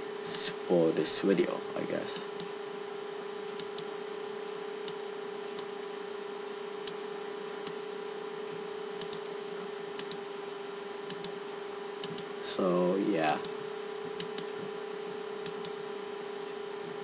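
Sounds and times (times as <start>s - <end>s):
electrical hum with hiss: 0.0s - 17.0s
faint mouse clicks: 11.1s - 11.4s.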